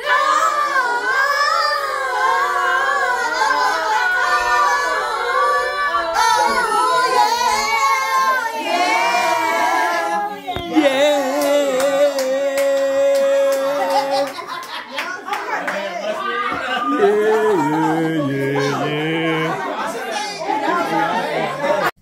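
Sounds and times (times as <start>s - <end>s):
women and children singing: 0.0s - 14.5s, 16.5s - 20.8s
hand claps: 10.6s - 15.8s.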